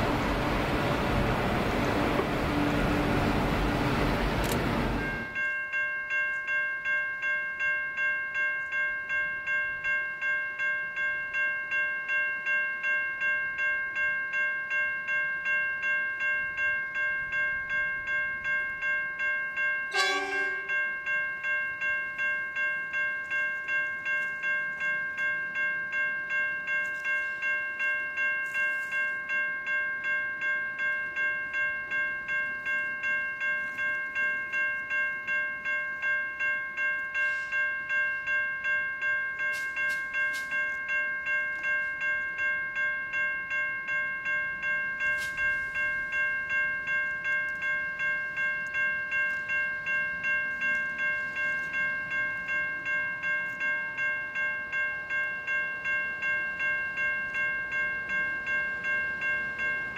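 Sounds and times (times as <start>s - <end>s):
level crossing warning bell ringing: 0.0s - 59.9s
train horn blast: 19.9s - 20.8s.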